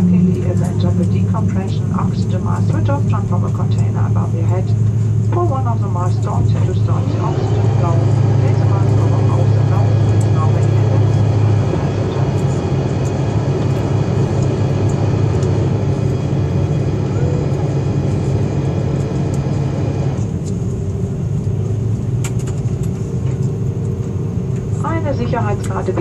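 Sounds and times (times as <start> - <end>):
steady tones: 0.0 - 20.2
aircraft cabin hum: 0.0 - 26.0.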